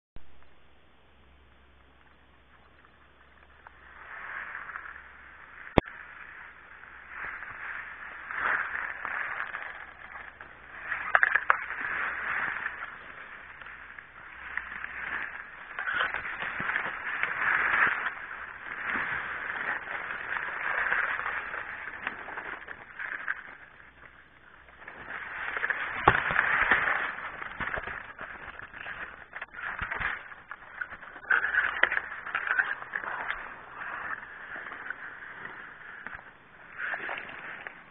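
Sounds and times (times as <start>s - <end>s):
dry grass rustling against phone: 1.6s - 37.9s.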